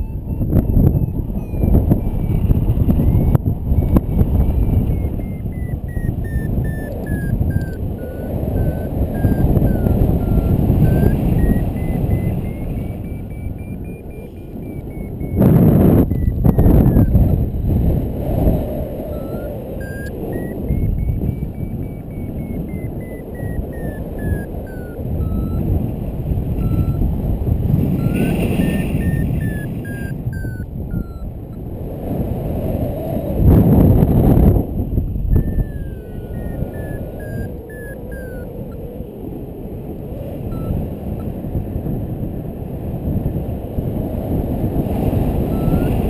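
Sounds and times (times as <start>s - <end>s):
variometer beeping: 0.0s - 31.7s, 35.2s - 39.2s, 40.0s - 41.3s, 44.9s - 46.0s
wind rushing over microphone: 0.0s - 46.0s.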